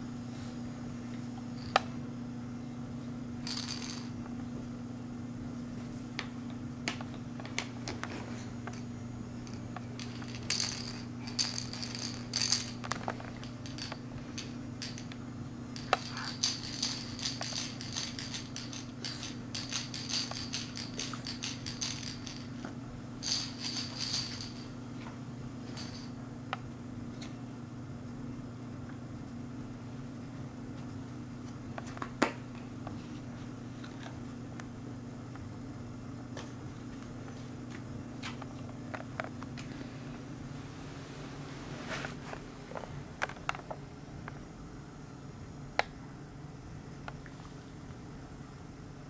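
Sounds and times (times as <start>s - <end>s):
steady low hum: 0.0s - 49.0s
small bell jingling: 10.0s - 12.8s, 15.8s - 22.5s, 23.2s - 24.7s.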